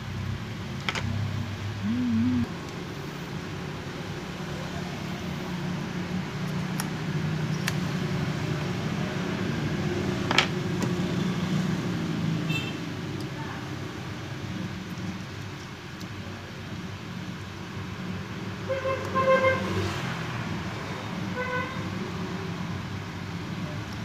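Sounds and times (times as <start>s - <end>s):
mechanical hum: 0.0s - 4.4s.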